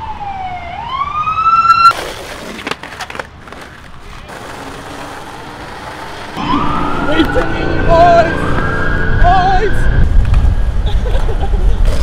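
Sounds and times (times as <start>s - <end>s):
emergency vehicle siren wailing: 0.0s - 1.9s, 6.4s - 11.4s.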